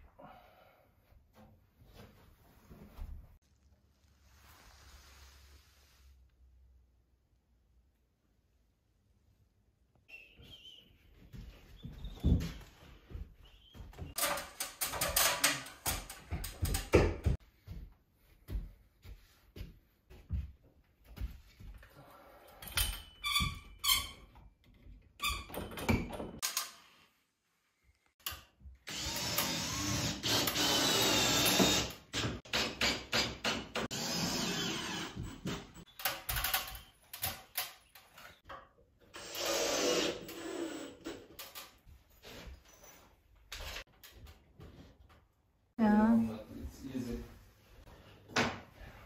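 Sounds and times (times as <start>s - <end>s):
cordless drill whining: 28.9s - 32.0s, 34.0s - 35.6s, 39.2s - 41.1s.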